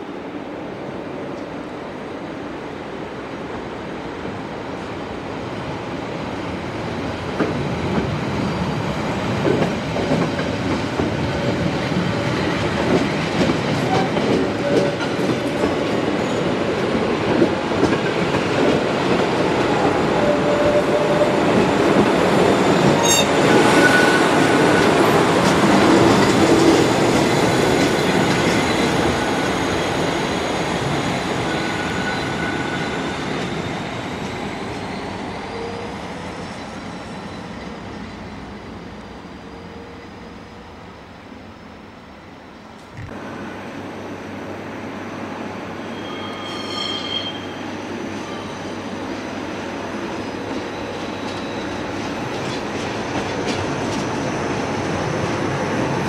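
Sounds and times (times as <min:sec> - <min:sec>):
wheels squealing thinly: 0:45.9 - 0:47.6.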